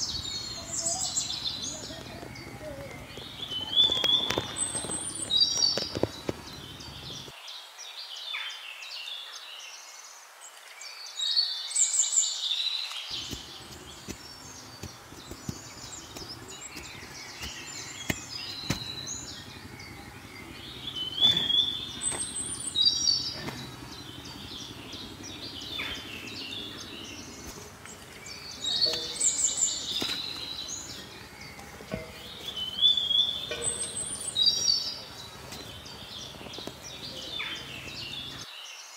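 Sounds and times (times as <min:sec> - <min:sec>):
birds singing: 0:00.0 - 0:38.9
short knocks: 0:28.6 - 0:37.0.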